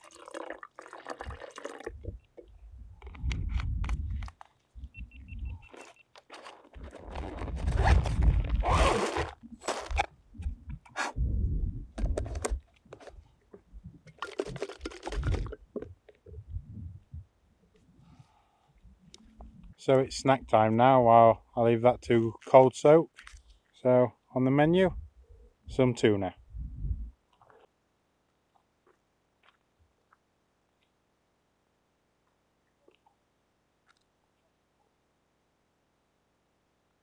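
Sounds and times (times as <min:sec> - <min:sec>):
water pouring into plastic jar: 0:00.0 - 0:02.1, 0:14.1 - 0:15.9
wind buffeting on microphone: 0:01.9 - 0:05.7, 0:07.4 - 0:08.9, 0:10.3 - 0:12.6, 0:16.3 - 0:17.3, 0:26.4 - 0:27.2.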